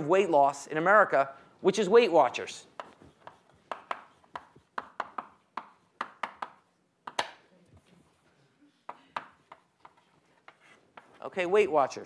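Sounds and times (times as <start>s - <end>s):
chalk tapping on blackboard: 2.7s - 7.4s, 8.9s - 11.2s.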